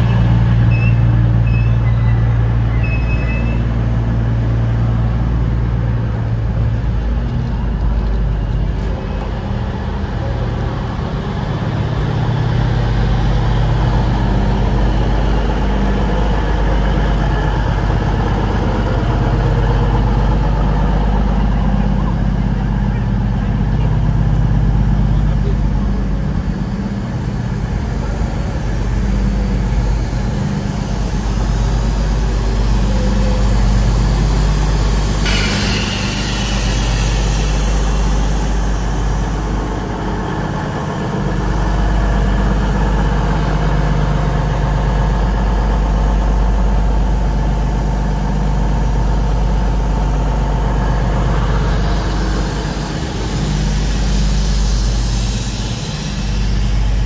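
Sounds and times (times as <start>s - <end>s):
diesel train engines idling: 0.0s - 57.0s
air hissing: 27.2s - 40.8s, 51.0s - 57.0s.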